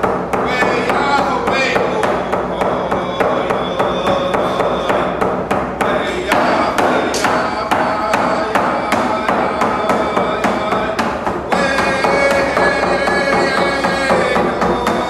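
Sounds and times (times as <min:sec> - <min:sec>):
hand drum beating: 0:00.0 - 0:15.0
man singing held notes: 0:05.8 - 0:15.0.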